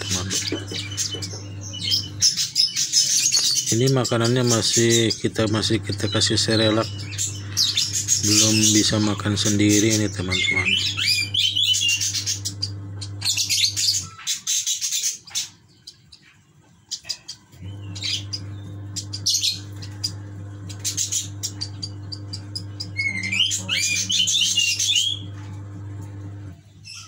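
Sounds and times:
low hum: 0:04.8 - 0:14.0, 0:17.6 - 0:26.6.

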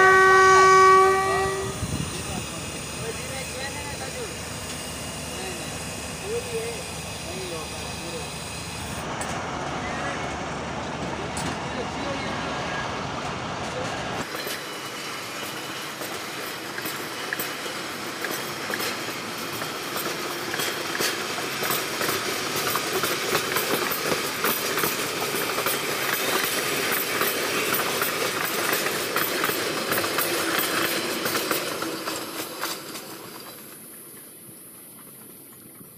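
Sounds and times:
train coaches rumbling past: 0:00.0 - 0:35.9
wheels clicking over rail joints: 0:15.4 - 0:35.9.

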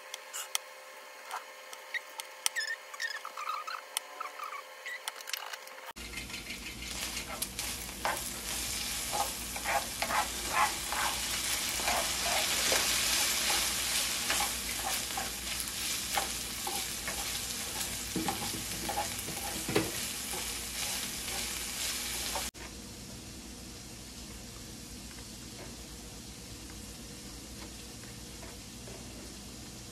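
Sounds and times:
meat sizzling in a skillet: 0:06.2 - 0:22.5.

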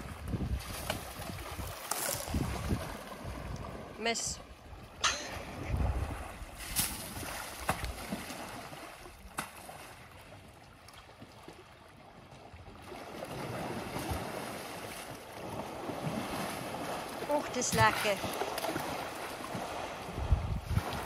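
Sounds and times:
elephant splashing water: 0:00.0 - 0:21.0.

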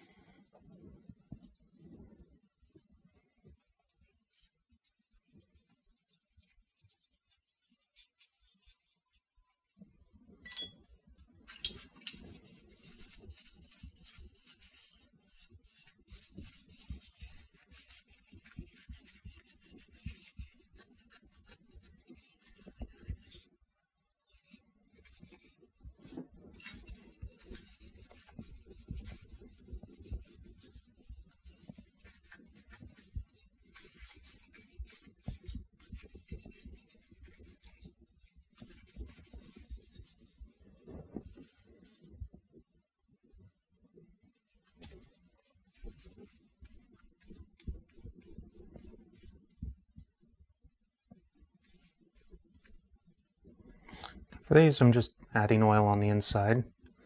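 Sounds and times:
cloth wiping metal magazine: 0:10.5 - 0:23.6, 0:24.2 - 0:42.1, 0:44.5 - 0:49.9, 0:51.0 - 0:54.6.

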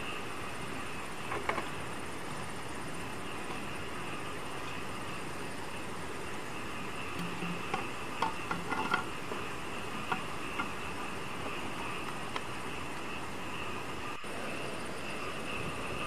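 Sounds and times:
night insects trilling: 0:00.0 - 0:16.0
bamboo and stones knocking: 0:01.2 - 0:02.0, 0:07.1 - 0:12.6.

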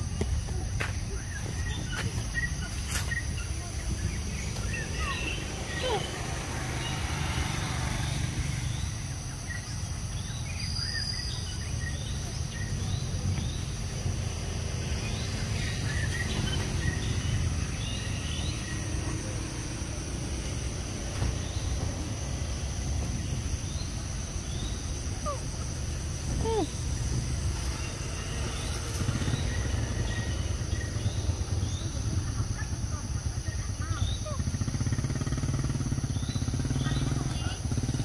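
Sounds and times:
high insect drone: 0:00.0 - 0:38.0
bird chirps: 0:01.1 - 0:07.2, 0:08.4 - 0:14.1.

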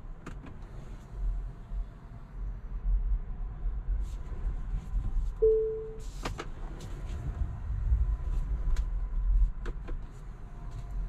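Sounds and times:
low car rumble: 0:00.0 - 0:11.0
short single-tone beep: 0:05.4 - 0:06.0.

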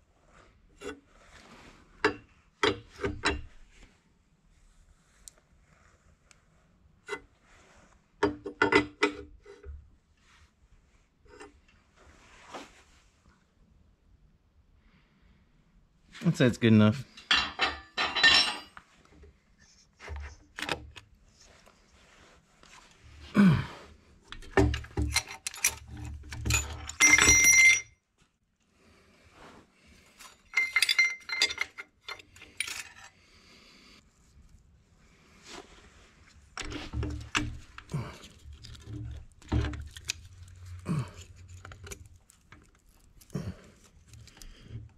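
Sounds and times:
soft scraping rub: 0:07.3 - 0:08.1, 0:11.8 - 0:13.2, 0:21.2 - 0:23.2, 0:33.1 - 0:36.9
metal parts clinking: 0:24.4 - 0:27.9, 0:30.3 - 0:33.1.

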